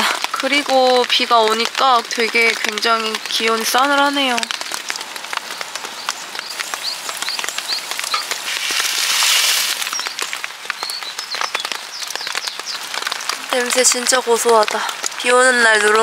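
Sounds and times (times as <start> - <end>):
rain pattering: 0.0 - 16.0
small bird chirping: 5.5 - 12.9
rice poured into boiling water: 5.8 - 10.6.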